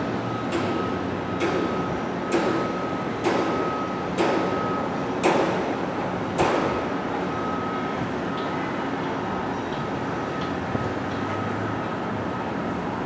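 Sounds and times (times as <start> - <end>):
steady background noise: 0.0 - 13.0
hammer striking steel: 2.3 - 3.6, 4.2 - 4.6, 5.2 - 5.6.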